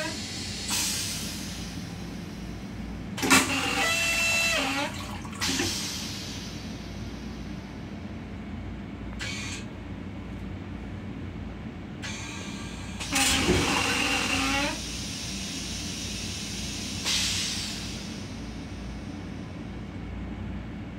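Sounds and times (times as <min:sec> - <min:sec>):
toilet flushing: 0:00.0 - 0:07.0, 0:13.0 - 0:18.8
rumble of running train: 0:00.0 - 0:20.9.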